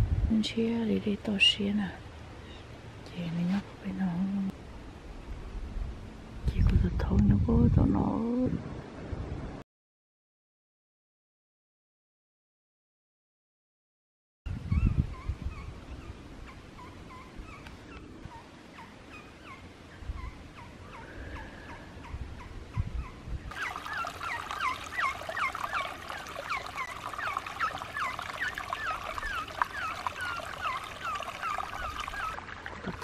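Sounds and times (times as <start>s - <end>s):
animal chirping: 22.0s - 32.4s.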